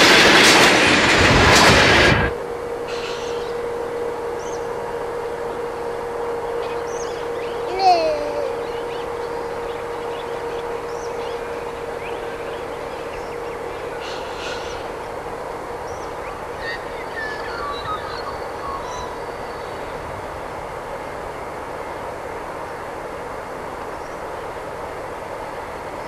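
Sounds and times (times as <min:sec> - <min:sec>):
distant train engine rumble: 0:00.0 - 0:26.0
birds chirping: 0:02.9 - 0:21.3.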